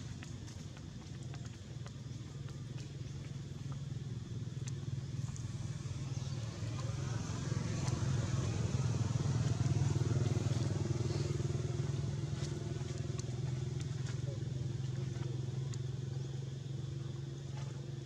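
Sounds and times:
motor engine low drone: 0.0 - 18.0
faint clicks: 4.6 - 5.5.

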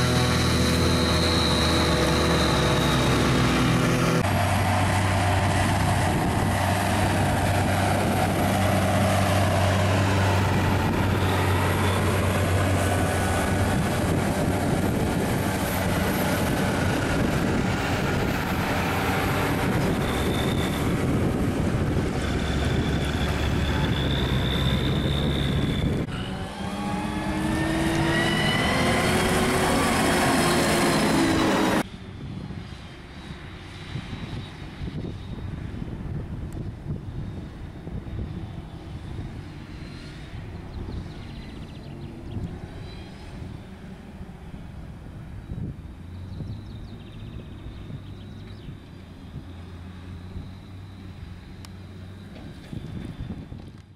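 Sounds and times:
high machine whine: 0.0 - 6.6
diesel machinery drone: 0.0 - 53.9.

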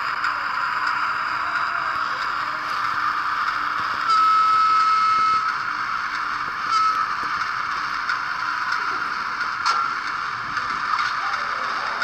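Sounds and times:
model train running: 0.0 - 12.0
high steady tone: 0.3 - 8.4.

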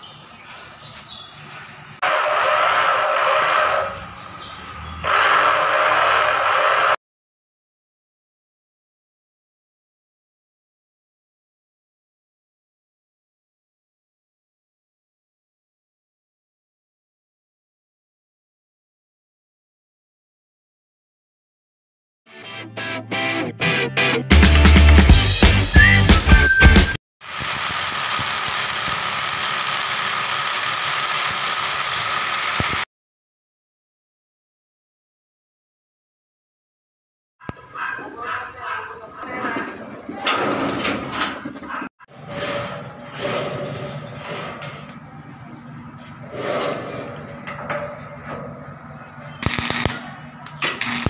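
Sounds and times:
hammer drill boring into wall: 5.0 - 7.0, 27.2 - 32.9, 49.4 - 49.9
welding arc crackling: 27.2 - 32.9, 49.4 - 50.0, 50.7 - 51.0.

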